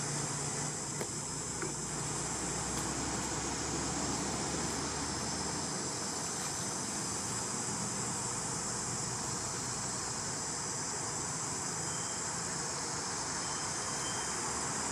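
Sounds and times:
even hiss: 0:00.0 - 0:14.9
high insect drone: 0:00.0 - 0:14.9.

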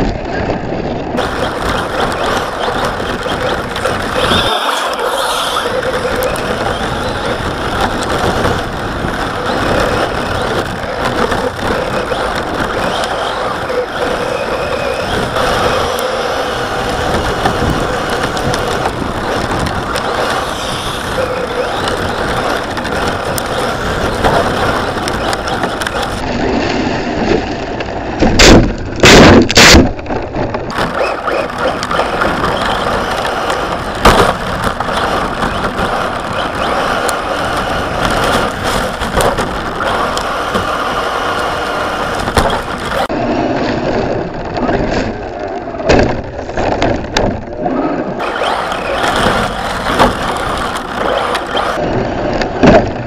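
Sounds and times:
tyre and chassis noise: 0:00.0 - 0:53.0
rc car motor running: 0:01.1 - 0:26.2, 0:30.7 - 0:43.1, 0:47.7 - 0:51.8.

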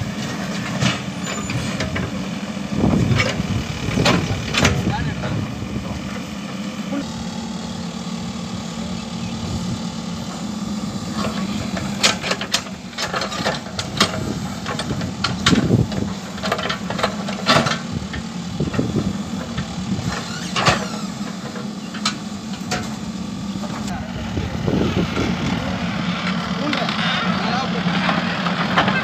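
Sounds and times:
diesel engine running: 0:00.0 - 0:29.0
backhoe bucket clanking: 0:02.9 - 0:06.1, 0:11.1 - 0:23.0.

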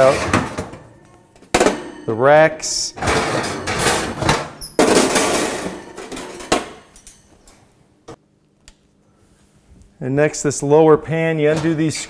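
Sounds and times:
oven racks scraping and clanking: 0:00.0 - 0:06.9, 0:11.4 - 0:12.0.

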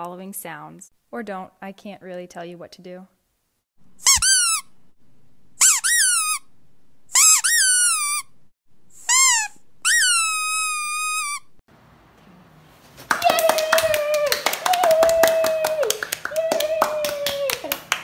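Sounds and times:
high-pitched sliding squeaks: 0:04.0 - 0:04.7, 0:05.6 - 0:06.5, 0:07.1 - 0:08.4, 0:09.0 - 0:11.6.

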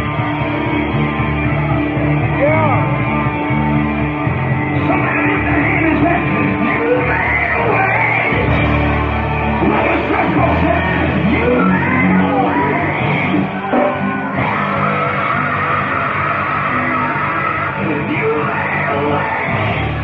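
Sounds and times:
bass line: 0:00.0 - 0:20.0
live gospel band playing: 0:00.0 - 0:20.0
person singing: 0:09.5 - 0:20.0.

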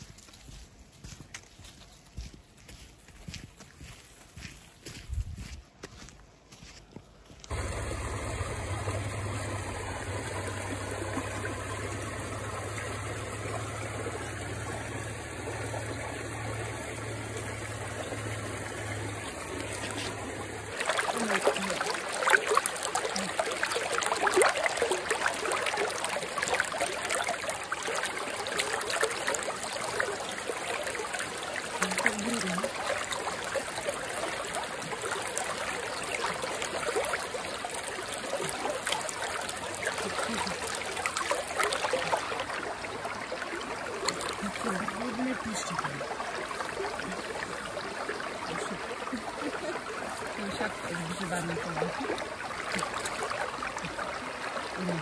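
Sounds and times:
stream trickling over stones: 0:07.4 - 0:55.0
steady low hum: 0:07.5 - 0:21.2.

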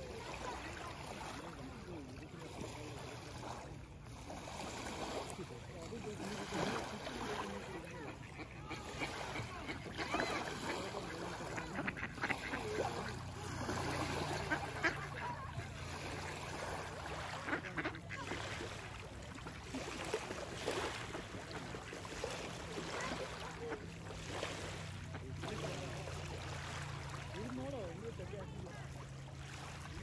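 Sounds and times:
small waves on pebble shore: 0:00.0 - 0:30.0
mallard ducks quacking: 0:06.7 - 0:18.9.

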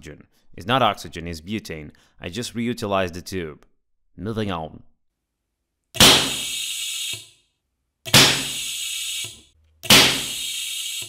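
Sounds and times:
hiss: 0:06.3 - 0:07.3, 0:08.4 - 0:09.4, 0:10.1 - 0:11.0.

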